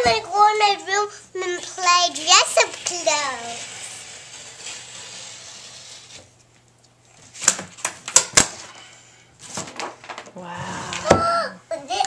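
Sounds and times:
paper tearing crackles: 2.2s - 6.4s.

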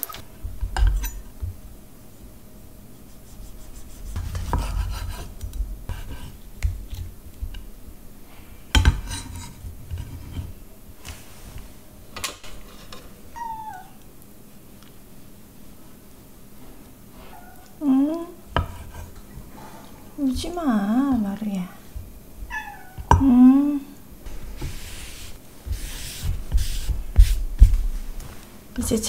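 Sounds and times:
knife scraping on cutting board: 3.0s - 6.4s, 8.8s - 10.6s, 18.5s - 19.9s, 24.6s - 27.4s
cat meow: 13.4s - 14.0s, 22.5s - 23.1s.

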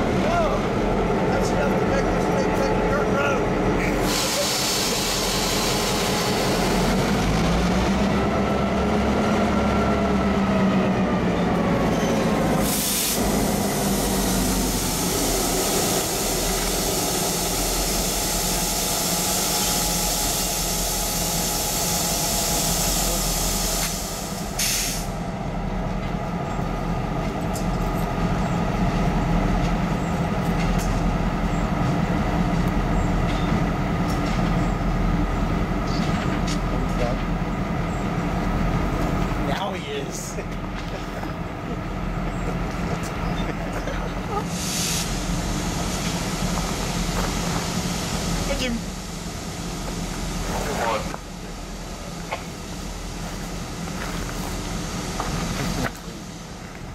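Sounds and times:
diesel locomotive engine drone: 0.0s - 56.9s
short air hisses: 4.0s - 6.2s, 12.6s - 20.9s, 21.8s - 25.2s, 44.5s - 46.2s.

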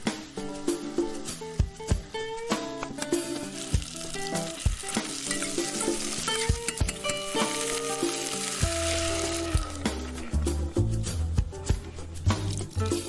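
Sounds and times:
onion sizzling in hot oil: 0.0s - 11.2s.

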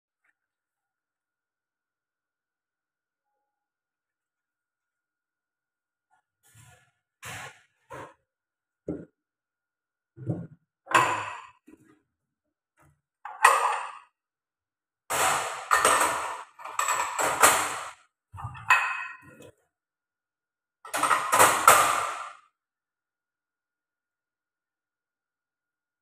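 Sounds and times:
ceramic bowls clinking and scraping: 10.3s - 11.9s, 13.3s - 14.1s, 15.4s - 19.5s.

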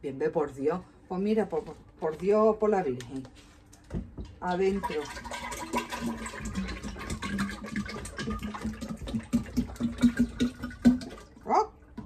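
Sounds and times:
liquid glugging from plastic bottle: 4.0s - 12.0s.

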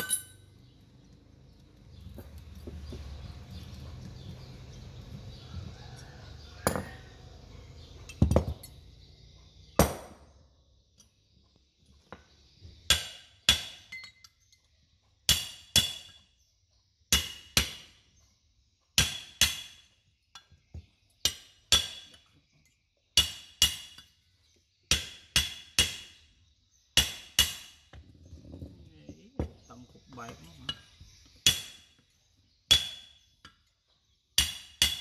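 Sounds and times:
hammer striking metal: 6.6s - 7.0s.

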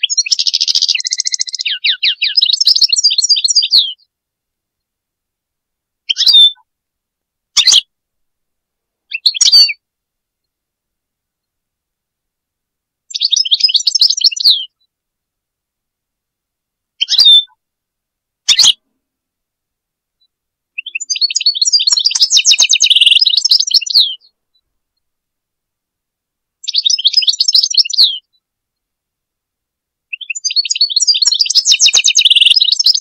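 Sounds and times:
goldfinch singing: 0.0s - 4.1s, 6.1s - 6.6s, 7.6s - 7.8s, 9.1s - 9.8s, 13.1s - 14.8s, 17.0s - 17.6s, 18.5s - 18.8s, 20.8s - 24.3s, 26.6s - 28.3s, 30.1s - 33.0s.

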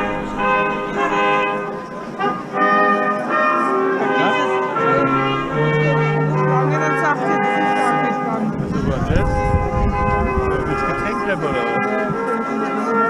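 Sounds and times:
low bass note: 0.0s - 1.8s, 8.5s - 11.6s
brass chords: 0.0s - 13.0s.

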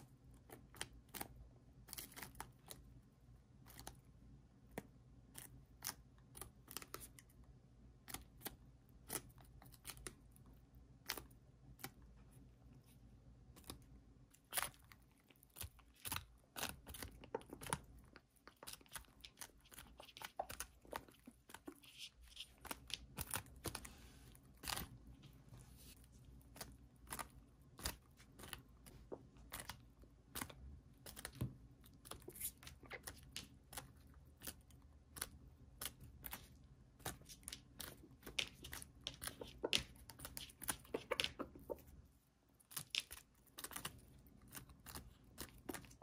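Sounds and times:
beaks pecking at cabbage leaves: 13.5s - 46.0s.

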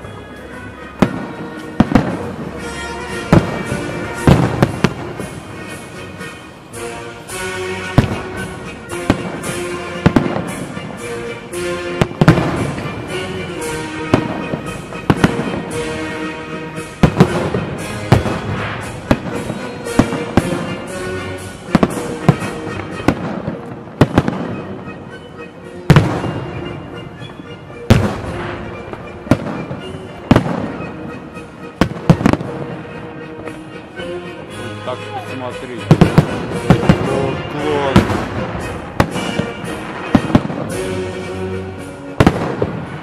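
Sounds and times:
firework crackling: 0.0s - 25.2s, 25.9s - 34.0s, 35.6s - 43.0s
music playing: 0.0s - 43.0s
firework shells bursting: 35.9s - 41.0s.

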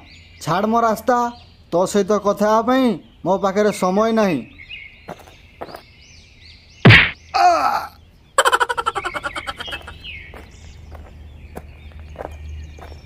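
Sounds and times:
birds chirping faintly: 0.0s - 13.0s
cartoon punch whack: 6.9s - 7.2s
cry of pain falling in pitch: 7.4s - 8.0s
quick chattering run: 8.4s - 10.0s.

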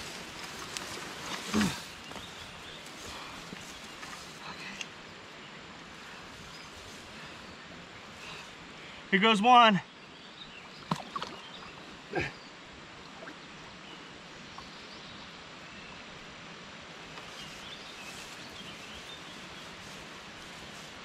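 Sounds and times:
river water flowing: 0.0s - 21.0s
fish splashing in water: 10.8s - 11.7s.

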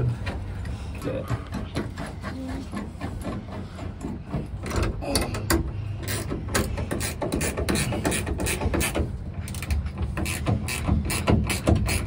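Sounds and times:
ratchet wrench clicking: 5.2s - 12.0s.

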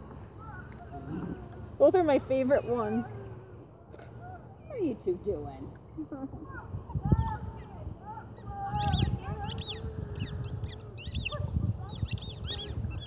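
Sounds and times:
squeaky toy squeaking: 8.8s - 13.0s.

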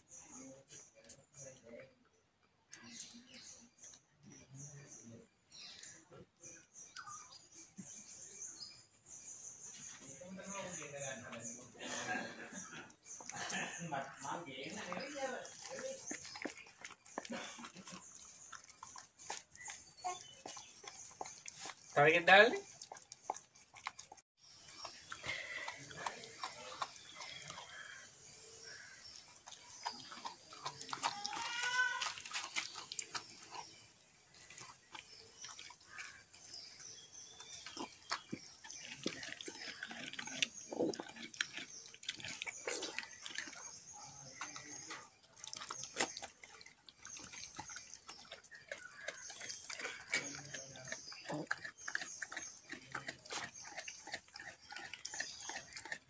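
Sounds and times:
dog licking wetly: 14.7s - 56.0s.

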